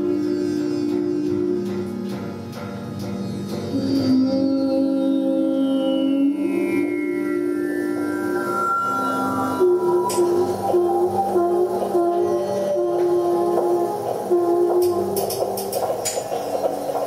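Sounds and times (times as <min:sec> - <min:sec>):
sustained droning tones: 0:00.0 - 0:17.0
high sliding tone: 0:06.2 - 0:15.2.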